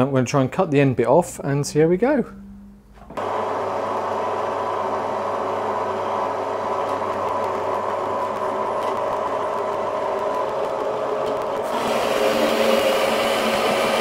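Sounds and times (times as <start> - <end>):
bandsaw motor humming and whining: 3.1 - 14.0.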